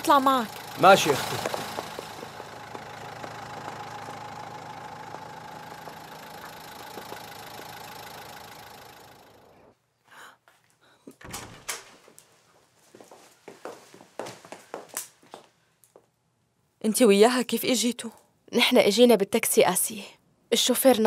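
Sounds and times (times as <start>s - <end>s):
car engine idling: 0.0s - 9.7s.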